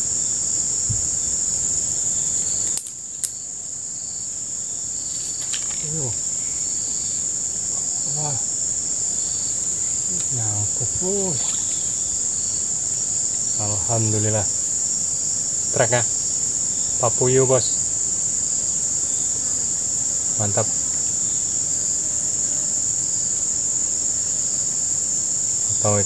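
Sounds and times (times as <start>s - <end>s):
insect chorus drone: 0.0s - 26.0s
sharp click: 2.6s - 3.4s
man murmuring: 5.8s - 6.2s, 7.8s - 8.5s, 10.1s - 11.6s.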